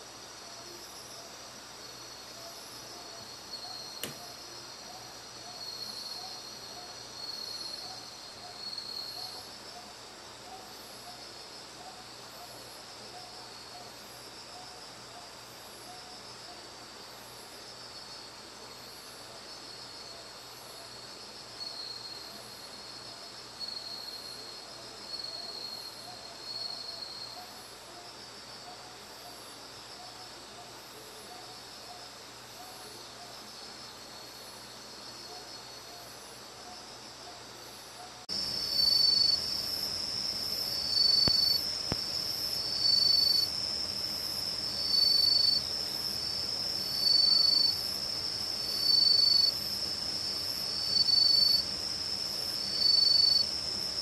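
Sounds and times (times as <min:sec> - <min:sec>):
insects trilling: 0:00.0 - 0:54.0
sharp click: 0:04.0 - 0:04.3, 0:41.2 - 0:42.1.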